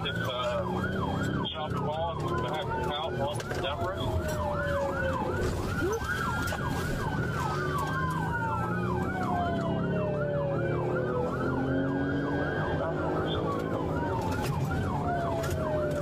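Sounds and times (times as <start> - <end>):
police siren yelp: 0.0 - 16.0
siren wail: 0.0 - 16.0
vehicle engine and road noise: 0.0 - 16.0.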